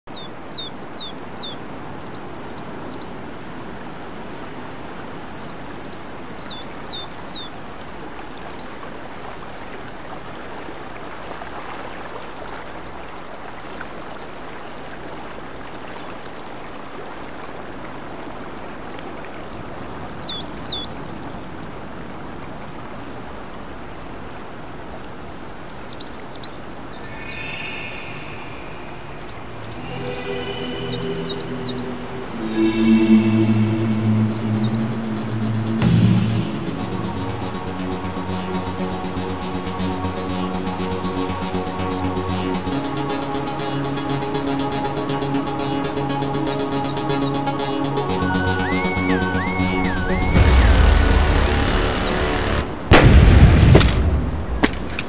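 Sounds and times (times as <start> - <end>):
songbird chirping: 5.3 - 7.6, 24.7 - 52.4
outdoor hiss: 26.7 - 30.9.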